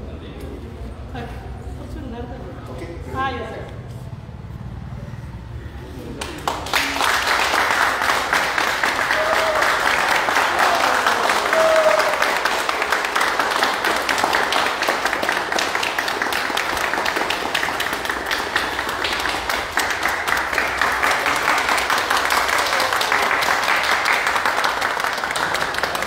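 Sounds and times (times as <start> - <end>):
people clapping: 6.0 - 26.0.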